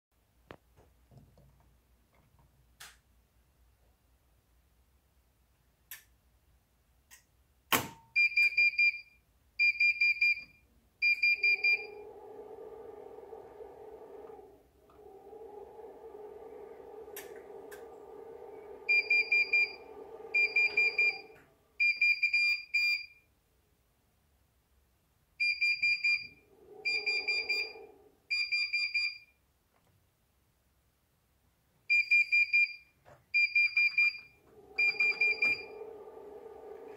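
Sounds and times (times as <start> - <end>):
steady low hum: 11.0 - 22.4, 25.8 - 28.9, 33.9 - 36.9
fast pulsing high beeps: 11.1 - 12.0, 18.9 - 23.0, 25.6 - 29.2, 33.6 - 35.8.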